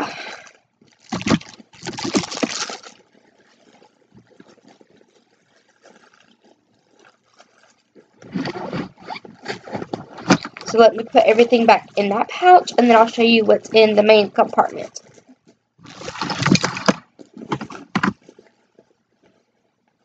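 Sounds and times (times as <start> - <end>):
objects rustling in a bag: 0.4 - 10.7, 15.0 - 18.6.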